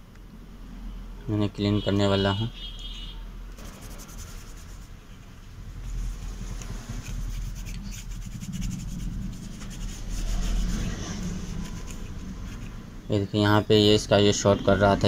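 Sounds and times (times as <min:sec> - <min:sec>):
cloth scrubbing circuit board: 0:03.6 - 0:05.0, 0:05.8 - 0:13.0.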